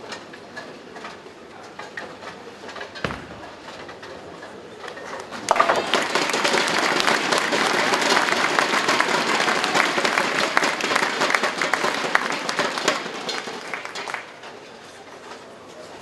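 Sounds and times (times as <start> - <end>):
audience applauding: 5.8 - 14.3.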